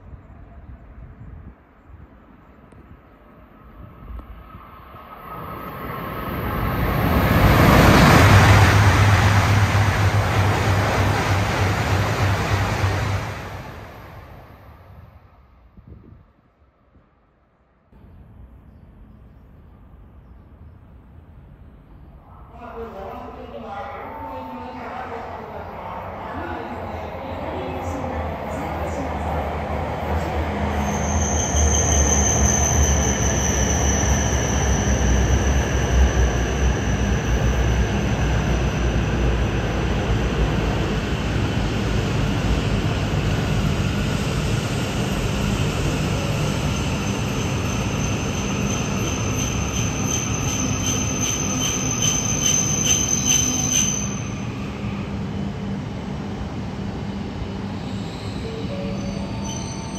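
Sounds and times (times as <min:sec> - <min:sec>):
train brakes squealing: 0:30.7 - 0:39.5, 0:46.2 - 0:55.0, 0:57.6 - 0:59.9.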